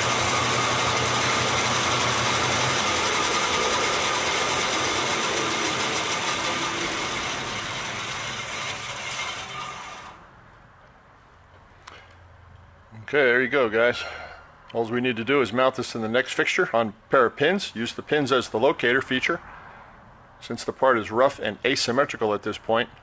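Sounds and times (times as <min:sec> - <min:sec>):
bandsaw running: 0:00.0 - 0:10.3.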